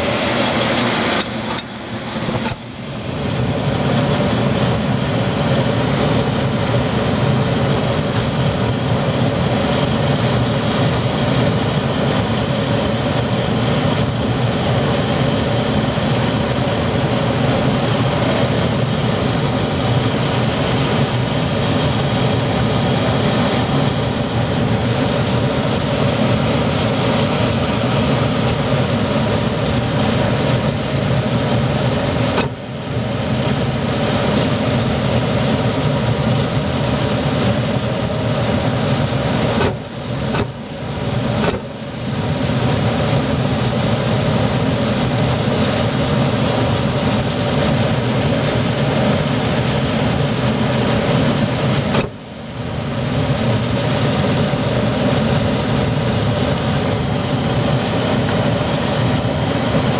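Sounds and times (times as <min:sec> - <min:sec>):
furnace draft motor whirring: 0:00.0 - 0:04.7, 0:36.4 - 0:42.8
gas burners rushing: 0:00.0 - 0:59.9.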